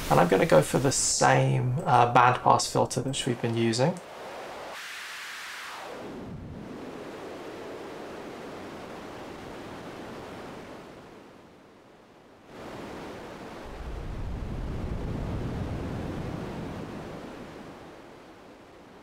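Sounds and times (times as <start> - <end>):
synthesized ocean surf noise: 0.0 - 19.0.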